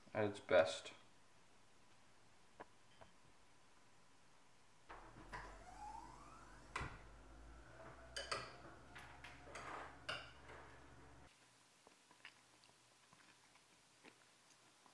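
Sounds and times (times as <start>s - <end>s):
room hum: 0.0s - 14.9s
faint rising squeak: 5.2s - 10.0s.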